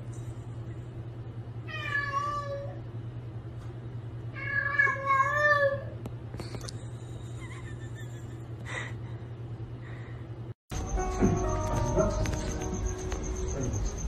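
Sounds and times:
steady low hum: 0.0 - 5.0, 5.8 - 14.0
cat meowing: 1.7 - 2.8, 4.4 - 5.9.

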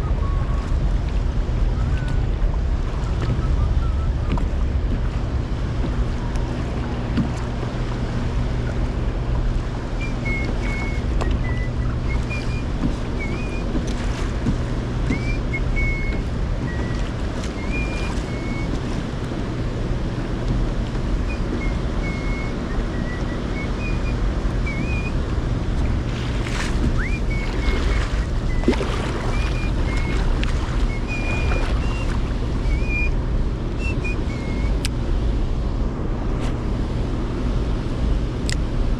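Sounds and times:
steady low hum: 0.0 - 38.9
water moving around kayak: 0.0 - 38.9
wind buffeting microphone: 0.0 - 38.9
short high chirps: 26.9 - 30.2, 30.8 - 32.1, 32.7 - 33.2.

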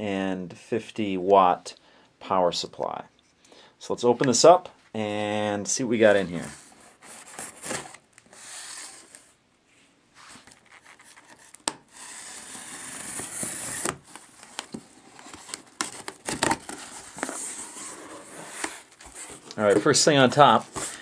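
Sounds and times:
scratching against cardboard: 10.2 - 21.0
blade slitting packing tape: 11.9 - 14.2.

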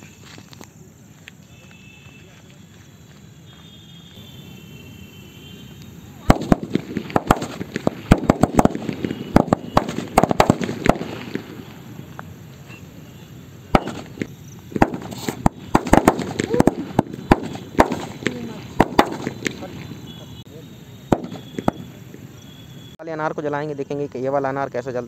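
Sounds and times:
firecrackers banging: 6.2 - 13.0, 13.6 - 20.1, 21.1 - 22.4.

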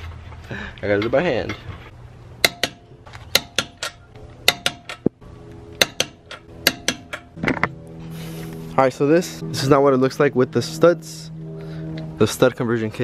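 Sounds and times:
sharp clicking percussive hits: 2.4 - 5.2, 5.8 - 7.8
sustained held chords: 5.2 - 13.0.

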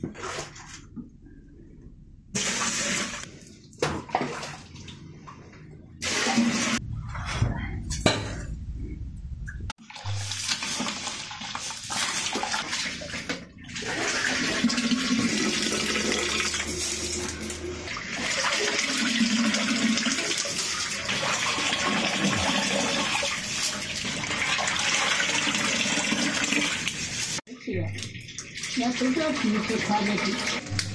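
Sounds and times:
water splashing and running off: 9.8 - 30.9.

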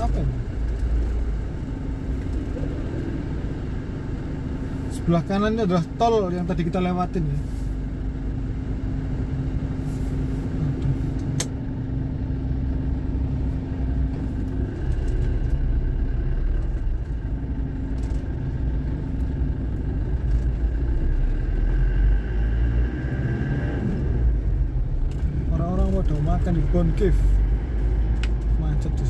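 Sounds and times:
engine and tyres rumbling: 0.0 - 29.0
sharp click: 11.2 - 11.6.

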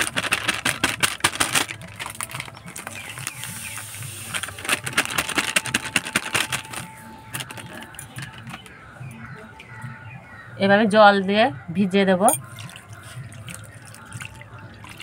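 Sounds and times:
plastic packet crackling: 0.0 - 8.7.

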